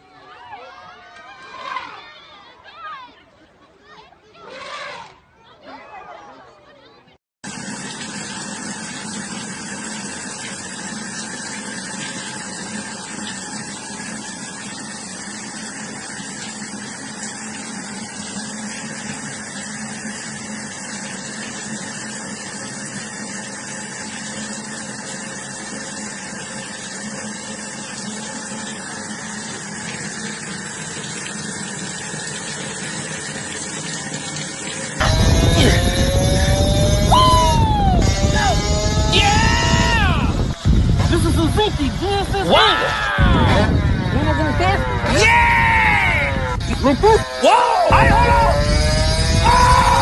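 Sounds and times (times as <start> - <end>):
running water: 7.4 - 50.0
low hum: 33.9 - 50.0.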